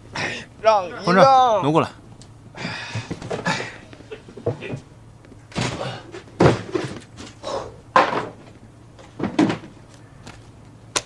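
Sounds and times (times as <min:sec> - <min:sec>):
box thunks and knocks on desk: 0:06.4 - 0:07.0, 0:08.0 - 0:08.4, 0:09.2 - 0:09.7.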